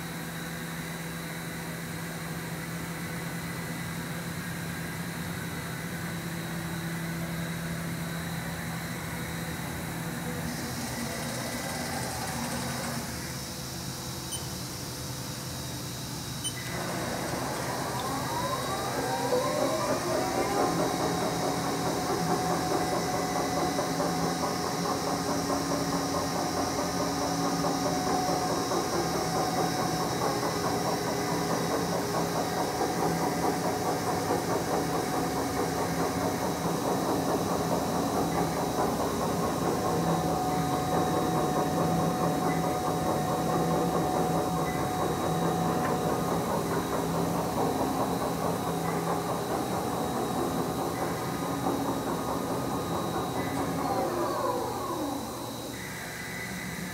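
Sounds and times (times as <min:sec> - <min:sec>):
lathe spindle whining: 0:03.9 - 0:56.9.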